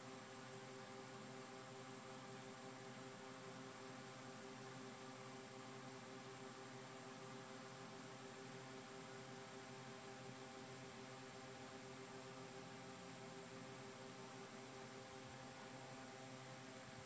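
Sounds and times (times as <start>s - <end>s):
faint steady hum and hiss: 0.0s - 17.0s.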